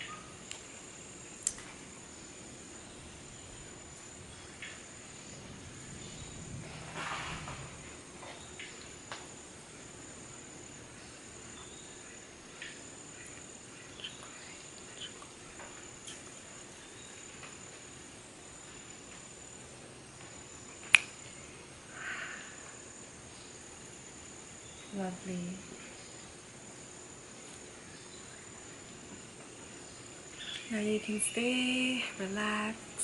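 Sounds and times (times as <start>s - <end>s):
insects droning: 0.0s - 33.0s
sharp click: 20.9s - 21.2s.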